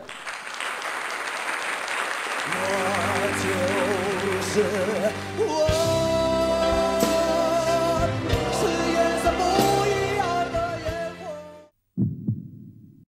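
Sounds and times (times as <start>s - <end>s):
song with singing and drums: 2.5s - 11.6s.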